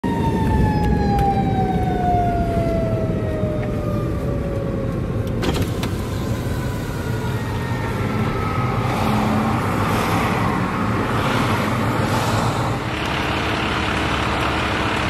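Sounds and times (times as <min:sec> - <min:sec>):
fire truck siren winding down: 0:00.0 - 0:10.5
engine and traffic rumble: 0:00.0 - 0:15.0.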